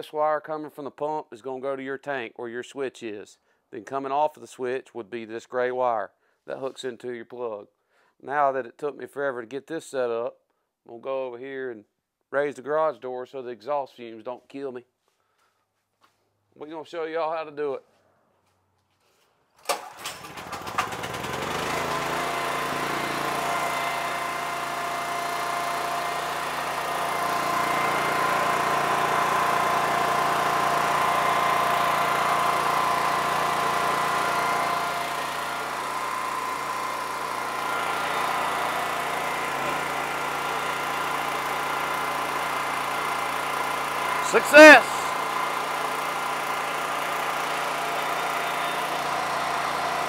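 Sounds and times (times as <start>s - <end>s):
pump pumping water: 19.7s - 50.0s
generator engine running: 19.8s - 50.0s.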